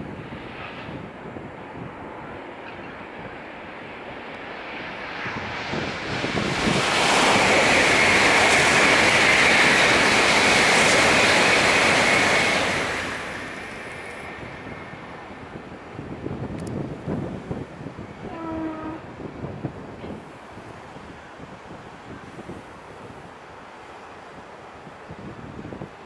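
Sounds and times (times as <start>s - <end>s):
loud rushing noise with ringing tone: 0.0s - 15.9s.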